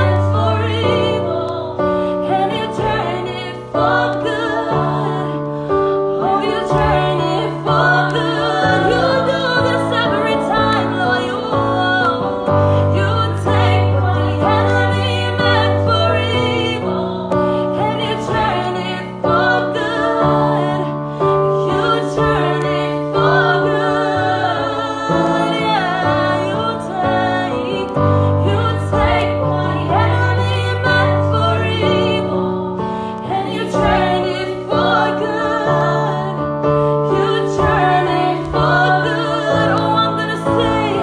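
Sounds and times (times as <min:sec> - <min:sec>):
woman singing gospel: 0:06.3 - 0:12.4, 0:13.0 - 0:17.2, 0:37.2 - 0:41.0.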